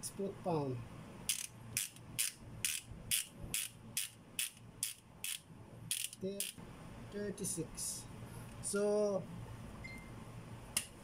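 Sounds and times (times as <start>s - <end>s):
ratchet wrench clicking: 1.3s - 6.6s.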